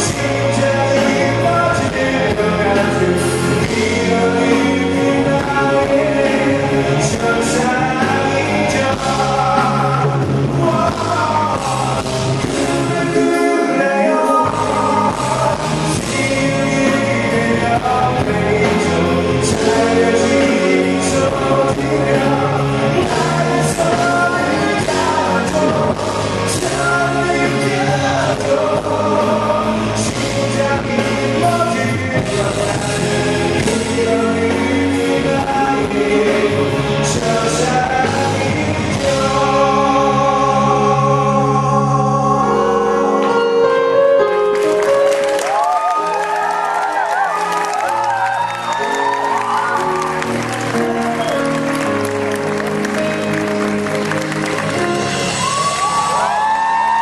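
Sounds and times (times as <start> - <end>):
bass notes: 0.0 - 13.6, 14.4 - 45.7, 49.5 - 57.0
man singing into microphone: 0.0 - 44.4
band accompaniment: 0.0 - 57.0.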